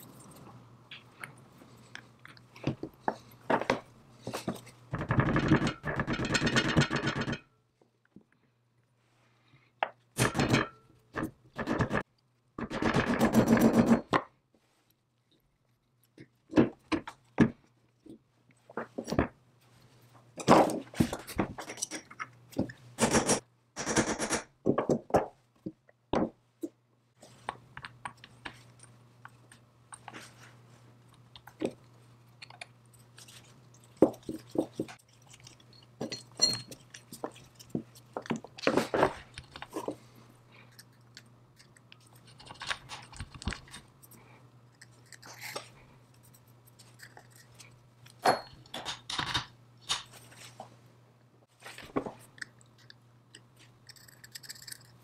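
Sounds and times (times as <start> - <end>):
metal parts clicking and scraping: 21.1 - 22.4, 32.4 - 40.0, 53.4 - 55.0.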